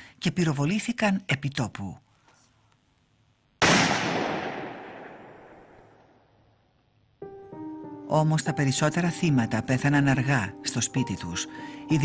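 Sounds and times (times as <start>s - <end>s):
gunshot with echo: 3.6s - 6.0s.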